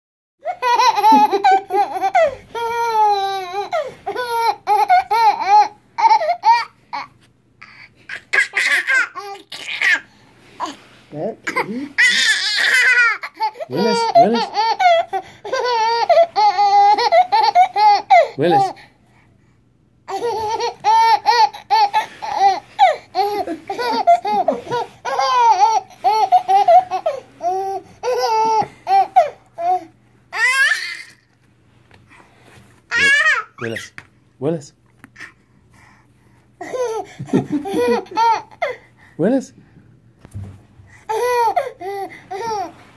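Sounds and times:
baby laughing: 0.4s - 7.1s, 8.1s - 10.8s, 11.4s - 18.8s, 20.1s - 31.3s, 32.9s - 34.0s, 36.6s - 38.8s, 41.1s - 42.8s.

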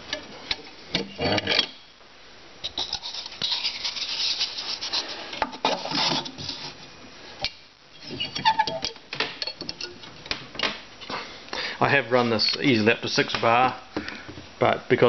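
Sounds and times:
cardboard scraping in metal fitting: 2.7s - 6.8s.

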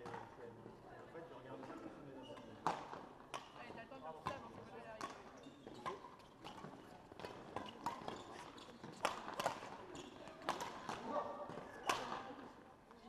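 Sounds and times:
rackets striking shuttlecocks: 4.2s - 12.4s.

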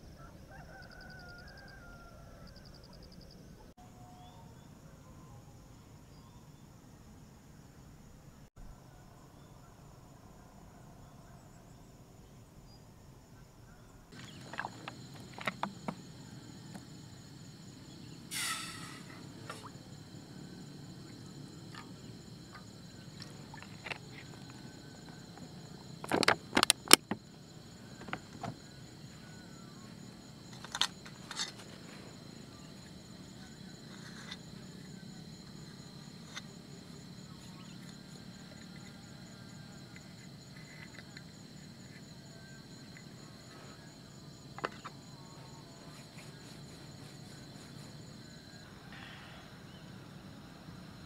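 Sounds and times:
insect chorus with pulsing trill: 0.0s - 51.0s
camp gear knocking and clicking: 14.2s - 16.9s, 21.7s - 28.9s, 30.4s - 32.0s.

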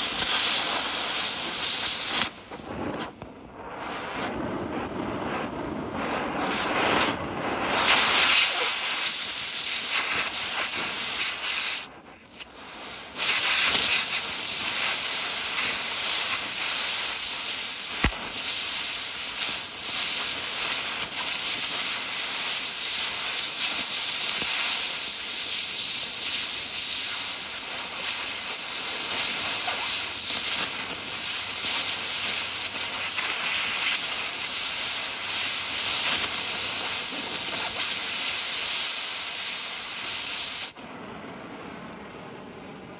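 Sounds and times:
cutting torch hissing: 0.0s - 40.8s
sharp click: 18.0s - 18.3s.

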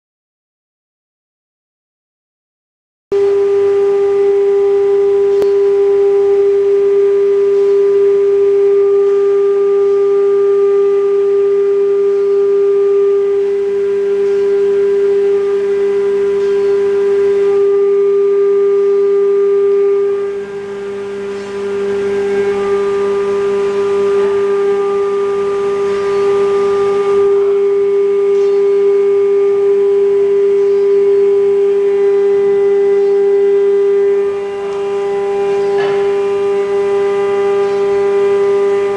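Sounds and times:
router spindle whine: 3.1s - 38.9s
rough cutting noise: 20.3s - 28.7s, 33.2s - 38.9s.

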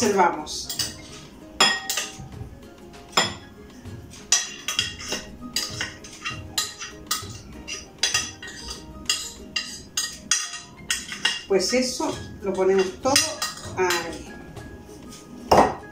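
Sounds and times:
utensil clinking on glass dish: 0.7s - 2.3s, 4.3s - 11.5s, 12.5s - 14.2s.

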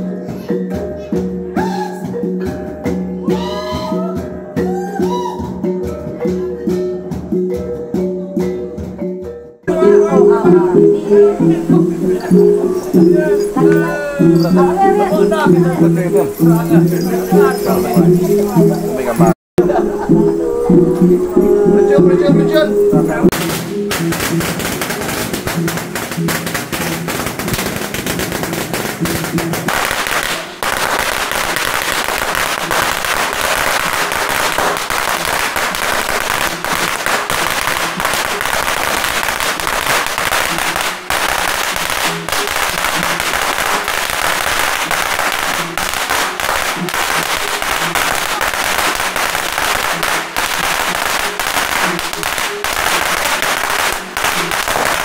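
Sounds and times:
music with held notes: 0.0s - 55.0s
firecrackers crackling: 9.7s - 20.3s, 22.2s - 55.0s.

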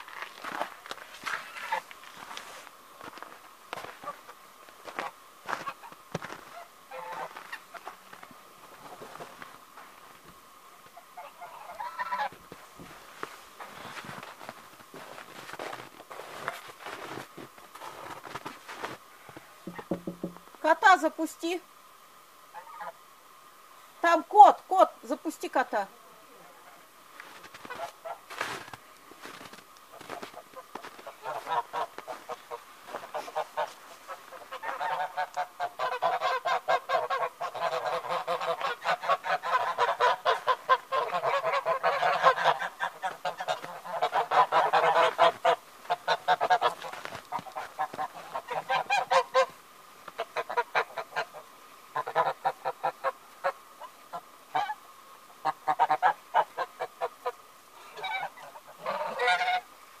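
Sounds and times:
geese cackling and honking: 0.0s - 9.9s, 10.7s - 13.0s, 22.5s - 23.0s, 26.4s - 59.8s.

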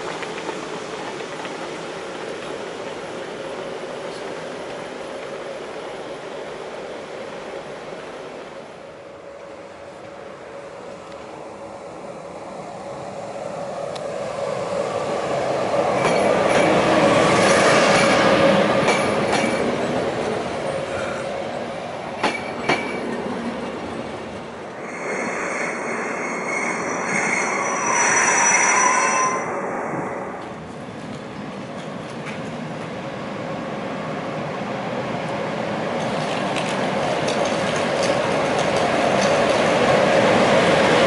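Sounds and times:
train rail and wheel noise: 0.0s - 41.0s
electric locomotive running: 22.2s - 32.5s
high-pitched tones: 24.8s - 30.6s.

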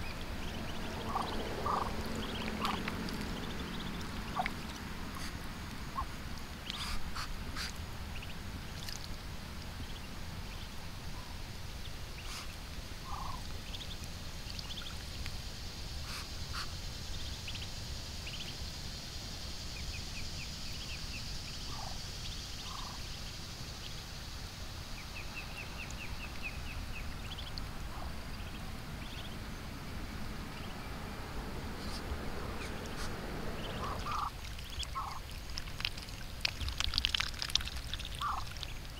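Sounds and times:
ducklings peeping: 0.0s - 9.1s, 12.1s - 15.2s, 19.8s - 23.3s, 24.9s - 29.8s, 30.4s - 38.9s
steady low rumble: 0.0s - 38.9s
bill clicks and splashes: 34.5s - 38.8s.

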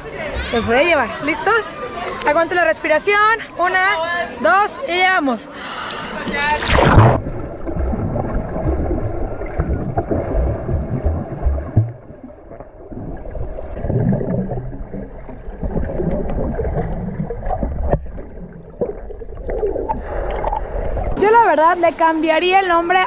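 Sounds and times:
muffled underwater churning water: 6.6s - 21.2s.

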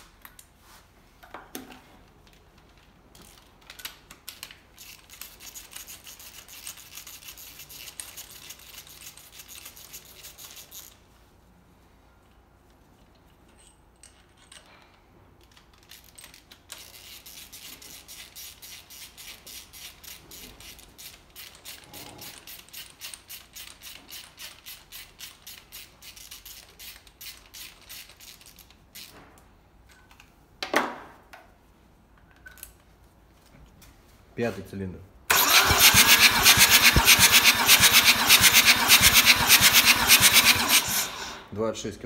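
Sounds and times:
ratchet wrench clicking: 15.5s - 29.1s, 35.3s - 41.4s.

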